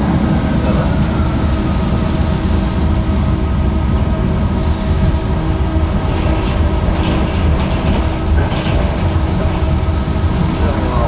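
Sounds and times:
constant hum: 0.0s - 11.0s
tram clatter: 0.0s - 11.0s
tram wheels rumbling on rails: 0.0s - 11.0s.

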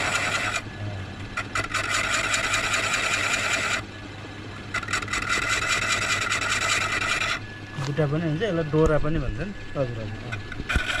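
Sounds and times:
cutting tool scraping wood: 0.0s - 0.6s, 1.4s - 3.8s, 4.7s - 7.4s, 10.3s - 11.0s
wood lathe motor humming: 0.0s - 4.0s, 4.6s - 11.0s.

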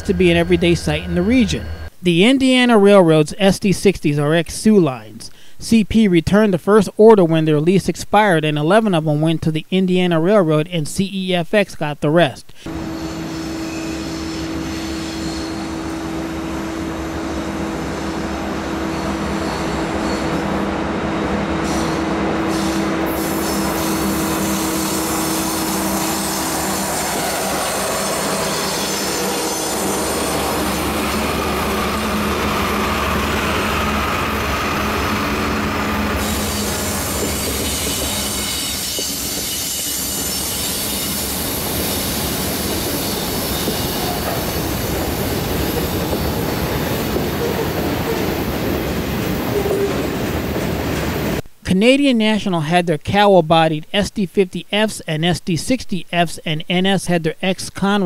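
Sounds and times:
locomotive diesel engine: 0.0s - 1.9s, 12.7s - 51.4s
rail cars rolling over rails: 12.7s - 51.4s.

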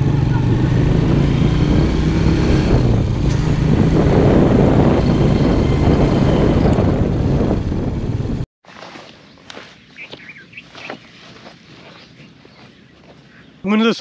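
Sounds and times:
motorcycle engine running: 0.0s - 8.4s
wind rumbling on microphone: 0.8s - 8.4s.

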